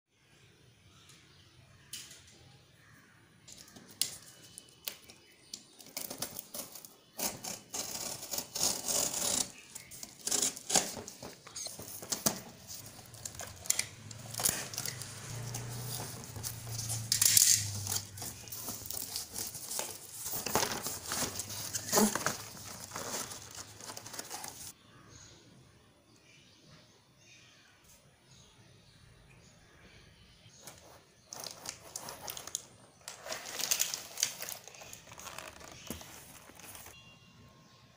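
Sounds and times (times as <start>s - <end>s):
cardboard tearing and crinkling: 5.8s - 24.7s, 31.3s - 37.0s
knife cutting tape and cardboard: 5.8s - 24.7s.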